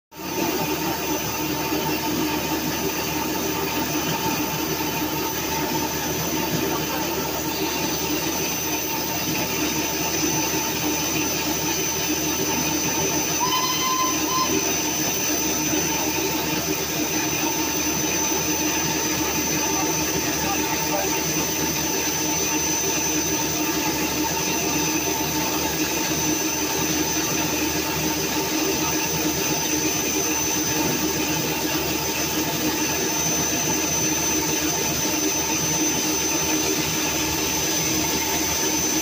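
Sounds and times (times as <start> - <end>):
steam locomotive hissing steam: 0.2 - 39.0
short high tone: 13.4 - 14.9.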